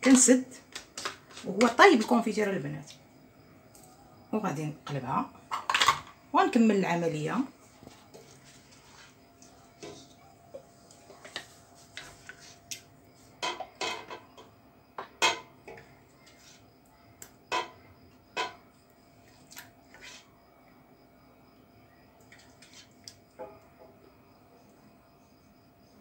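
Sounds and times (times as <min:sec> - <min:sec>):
wooden spoon scraping metal pot: 0:19.9 - 0:20.3, 0:22.3 - 0:23.6.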